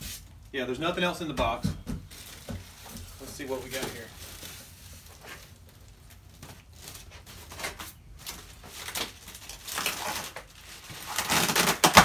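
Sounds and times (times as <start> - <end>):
plastic wrap rustling and scraping: 0.0 - 0.5, 2.0 - 12.0.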